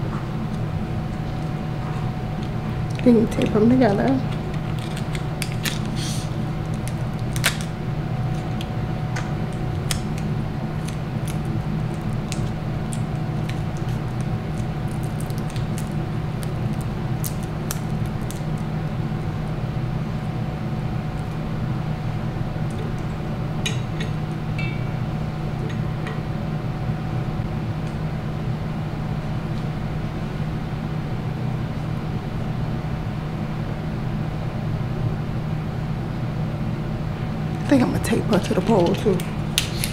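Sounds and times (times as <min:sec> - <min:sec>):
steady low hum: 0:00.0 - 0:39.9
clear tape crinkling: 0:00.5 - 0:19.6, 0:37.6 - 0:39.9.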